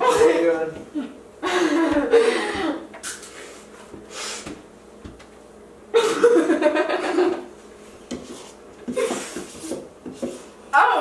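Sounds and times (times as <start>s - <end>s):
person laughing: 1.0s - 2.9s, 6.0s - 7.5s.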